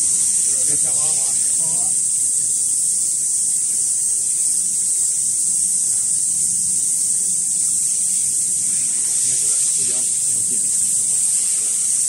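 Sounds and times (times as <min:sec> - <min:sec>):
high-pitched machine hiss: 0:00.0 - 0:12.0.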